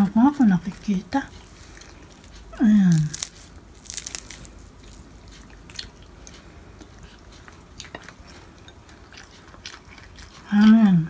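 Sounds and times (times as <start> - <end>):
crisp fried fish tearing: 2.9 - 5.2.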